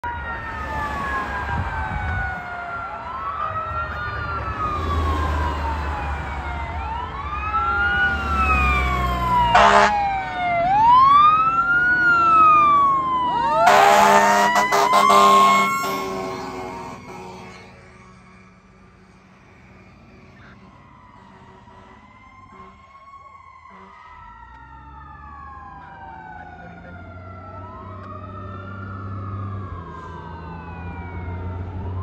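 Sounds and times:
fire engine siren wailing: 0.0s - 32.0s
air horn blasts: 9.5s - 10.0s, 13.6s - 17.9s, 21.3s - 23.0s, 23.7s - 24.1s.

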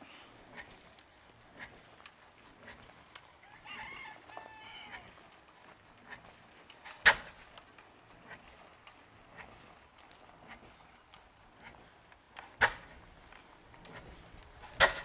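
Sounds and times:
faint footsteps: 0.0s - 15.0s
rooster crowing: 3.4s - 5.1s.

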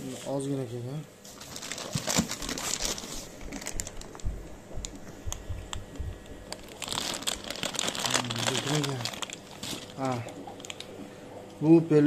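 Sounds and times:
plastic bags crinkling: 1.2s - 5.0s, 6.3s - 11.0s.

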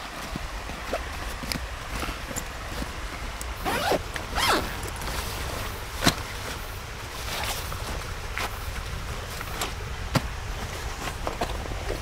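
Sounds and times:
mountain stream flowing: 0.0s - 12.0s
zipper pulled open: 3.6s - 4.8s.

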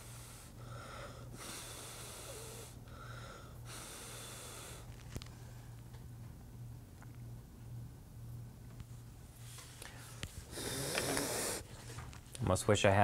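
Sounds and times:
person drawing breath: 0.0s - 4.9s, 9.8s - 12.0s
steady low hum: 0.0s - 13.0s
person blowing hard: 10.5s - 11.8s.

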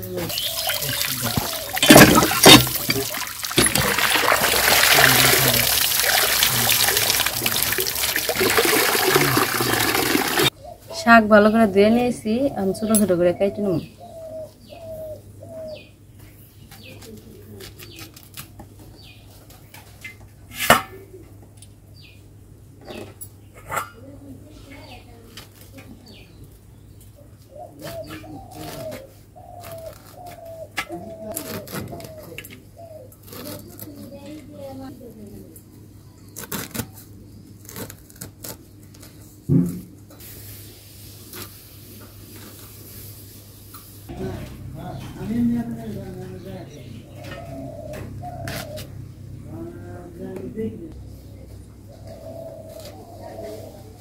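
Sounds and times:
pigeon cooing: 0.0s - 11.1s, 13.4s - 15.9s, 27.4s - 34.2s, 46.8s - 49.1s, 51.3s - 54.0s
small bird chirping: 0.2s - 3.0s
wet leaves rustling: 0.3s - 10.5s
leaves cut on blade clicks: 17.1s - 18.6s, 31.4s - 32.2s, 36.3s - 39.2s.

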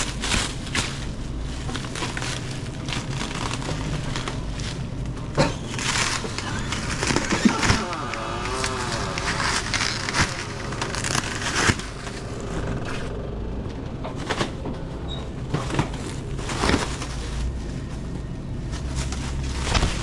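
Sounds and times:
plastic stretch wrap rustling: 0.0s - 13.2s, 14.2s - 20.0s
steady low hum: 0.0s - 20.0s.

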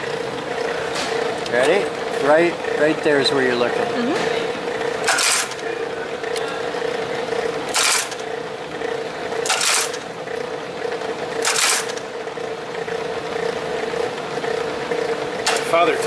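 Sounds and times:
embossing machine motor hum: 0.0s - 16.0s
machine clacking strokes: 5.0s - 5.6s, 7.7s - 8.4s, 9.4s - 10.1s, 11.3s - 12.2s.

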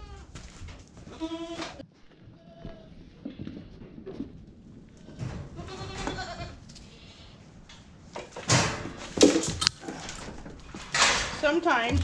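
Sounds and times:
goats bleating: 0.0s - 0.4s, 1.1s - 1.8s, 5.6s - 7.3s.

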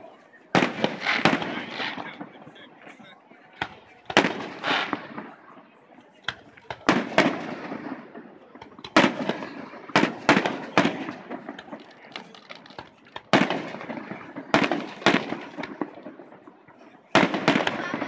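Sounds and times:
firework shells bursting: 0.6s - 2.5s, 3.6s - 5.4s, 6.2s - 16.5s.

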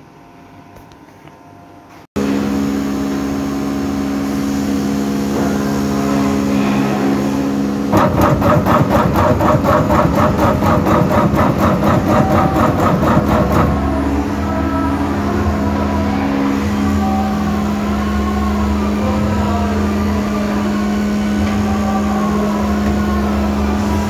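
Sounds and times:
router motor hum: 7.9s - 14.3s
fast even pulsing: 7.9s - 14.5s.

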